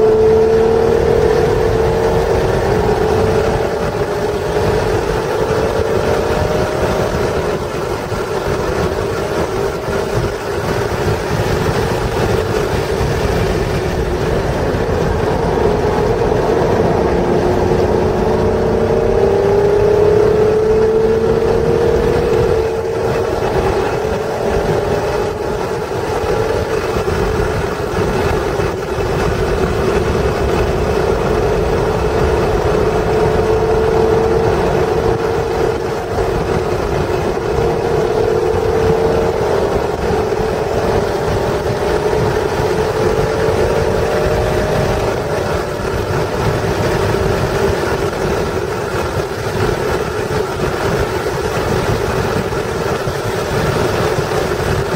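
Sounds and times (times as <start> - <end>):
car engine accelerating: 0.0 - 54.9
road and wind noise: 0.0 - 54.9.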